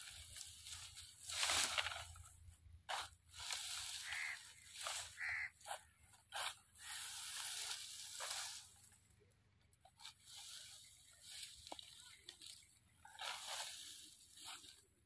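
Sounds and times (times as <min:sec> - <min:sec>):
dry stalks rustling and crunching: 0:00.0 - 0:15.0.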